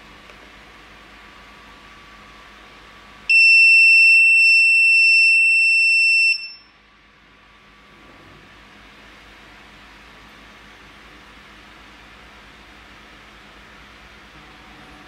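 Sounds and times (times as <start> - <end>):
high-pitched warning buzzer: 3.3 - 6.7.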